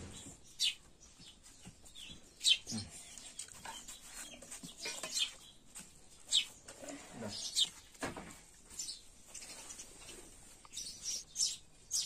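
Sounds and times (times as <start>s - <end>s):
chickens clucking: 1.9s - 7.8s.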